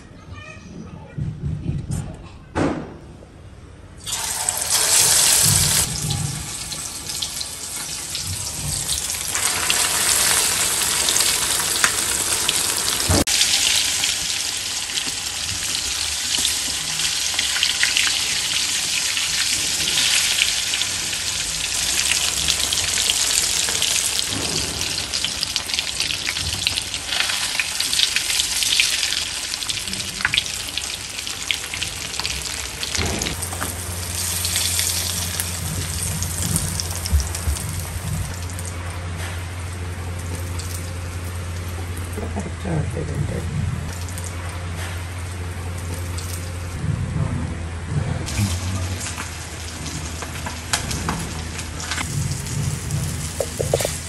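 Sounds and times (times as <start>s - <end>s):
fish sizzling in hot oil: 4.1s - 38.4s.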